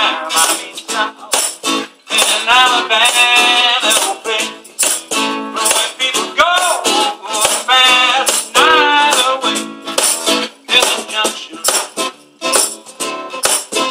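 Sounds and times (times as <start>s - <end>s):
man singing: 0.0s - 9.7s, 10.6s - 12.0s
strummed acoustic guitar: 0.0s - 13.9s.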